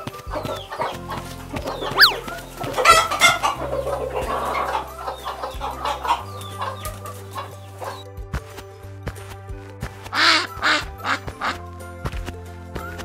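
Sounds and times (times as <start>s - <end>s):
background music with low notes: 0.0s - 13.0s
hens clucking: 0.1s - 8.0s.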